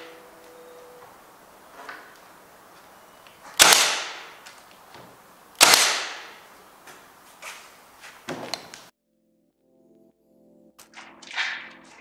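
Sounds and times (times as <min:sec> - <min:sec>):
nailer firing sharp bangs: 0:03.5 - 0:04.4, 0:05.6 - 0:06.5.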